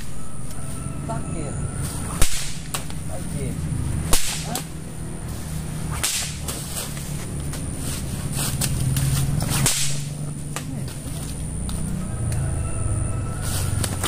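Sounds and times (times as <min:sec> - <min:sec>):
steady low hum: 0:00.0 - 0:14.0
whip-like lashing cracks: 0:02.1 - 0:03.0, 0:04.0 - 0:04.7, 0:05.8 - 0:07.1, 0:08.4 - 0:10.8.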